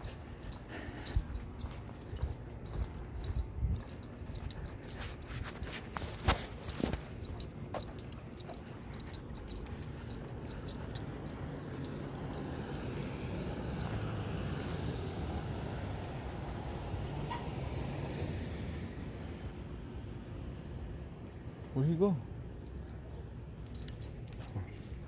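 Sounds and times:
light metallic jingling clicks: 0.0s - 15.1s, 20.2s - 21.0s, 21.6s - 25.0s
vehicle passing rumble: 0.0s - 25.0s.

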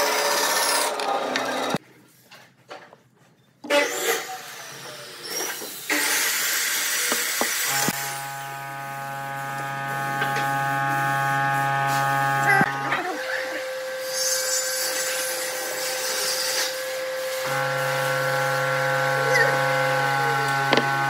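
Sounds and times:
hand file scraping wood: 17.4s - 21.0s.

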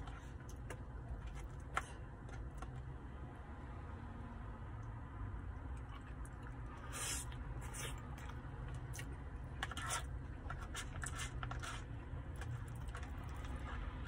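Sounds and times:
chewing: 5.6s - 14.0s
plastic fork scraping food: 9.0s - 13.9s.

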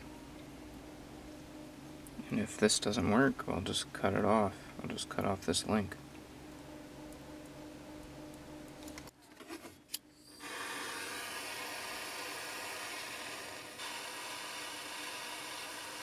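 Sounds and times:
gas torch hissing: 10.2s - 16.0s.

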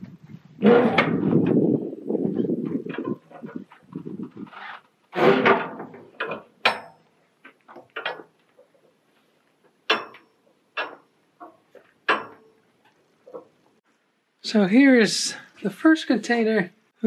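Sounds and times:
metal container doors clattering: 0.6s - 1.7s, 5.1s - 7.0s
sharp metallic clanks: 5.2s - 7.2s, 9.9s - 12.6s.

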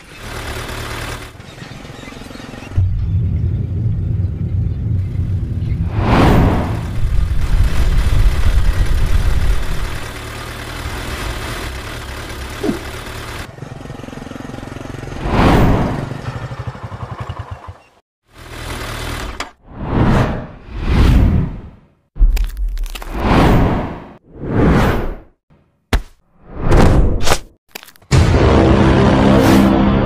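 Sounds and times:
vehicle engine rumbling: 0.0s - 19.6s.

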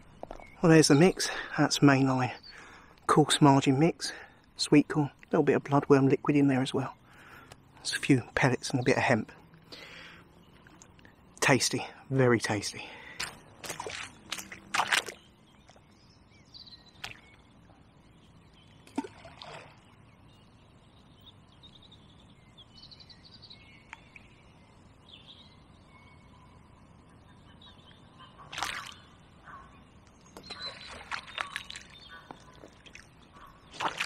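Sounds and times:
faint birdsong: 0.0s - 34.0s
groundbait splashing into lake: 13.2s - 15.8s, 18.8s - 19.9s, 28.5s - 29.0s, 30.4s - 32.0s, 33.7s - 34.0s.

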